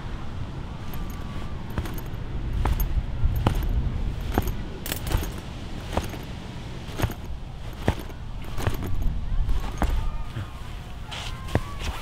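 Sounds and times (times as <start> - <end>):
low steady rumble: 0.0 - 11.8
light metallic jingle: 0.8 - 10.3
footsteps on pavement: 0.8 - 12.0.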